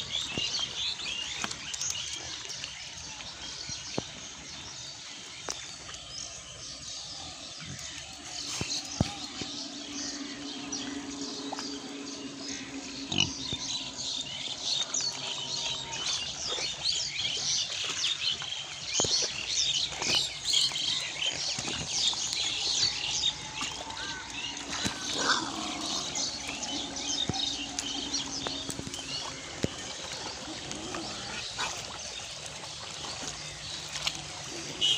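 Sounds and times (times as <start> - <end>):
splashing water and mud: 7.5 - 34.9
pigs grunting: 12.5 - 13.8, 24.6 - 32.1.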